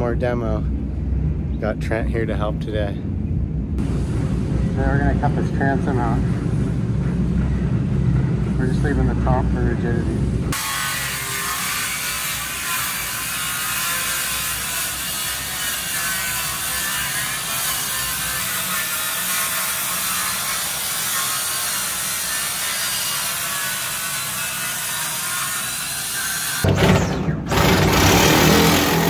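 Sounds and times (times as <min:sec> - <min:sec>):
multi-tool cutting fiberglass: 0:10.5 - 0:29.0.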